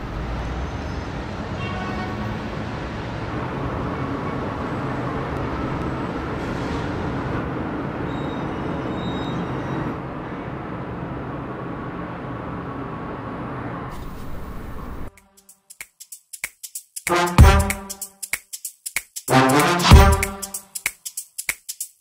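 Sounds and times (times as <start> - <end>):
car engines and tyre noise: 0.0 - 15.1.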